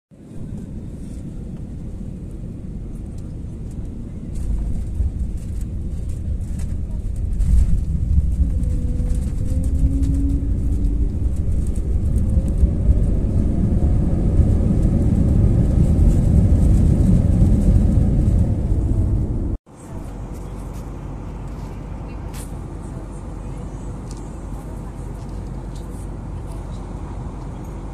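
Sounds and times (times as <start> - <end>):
airliner cabin rumble: 0.1 - 27.9
steady cabin hum: 0.2 - 27.9.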